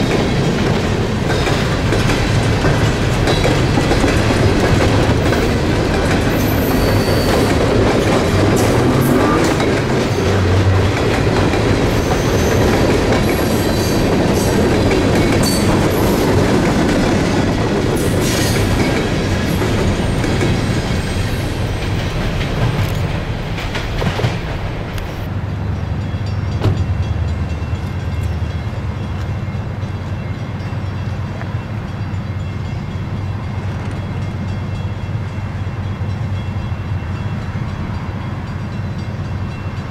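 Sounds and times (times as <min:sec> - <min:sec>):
train wheels clattering over rail joints: 0:00.0 - 0:25.3.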